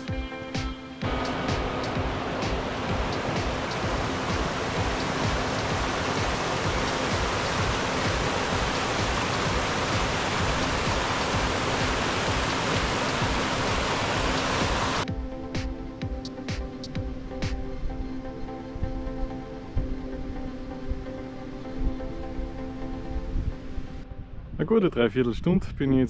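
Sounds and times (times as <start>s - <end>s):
background music: 0.0s - 25.1s
rushing water: 1.0s - 15.1s.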